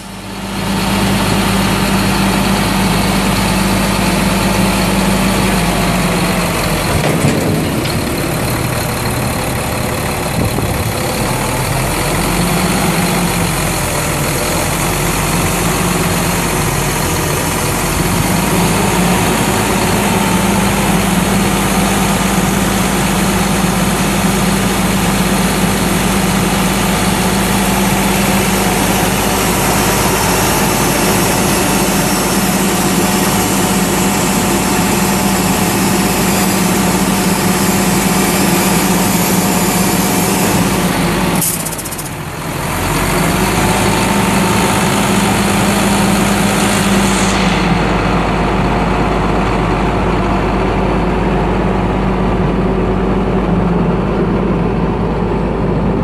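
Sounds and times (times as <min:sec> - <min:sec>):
hydraulic lift arm hum: 0:00.0 - 0:51.1
diesel engine running: 0:00.0 - 0:56.0
metallic clunk: 0:06.8 - 0:09.6.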